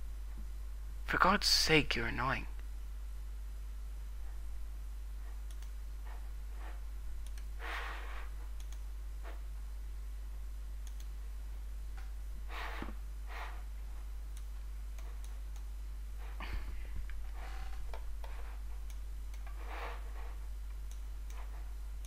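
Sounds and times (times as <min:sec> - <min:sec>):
steady low hum: 0:00.0 - 0:22.0
computer mouse clicks: 0:05.4 - 0:05.8, 0:07.2 - 0:07.5, 0:08.6 - 0:08.9, 0:10.8 - 0:11.2, 0:14.3 - 0:15.7, 0:17.9 - 0:21.6.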